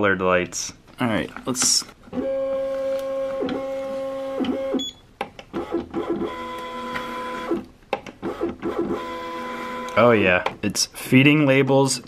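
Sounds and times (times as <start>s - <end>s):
label printer motor whine: 2.2s - 4.8s, 5.6s - 7.6s, 8.3s - 10.0s.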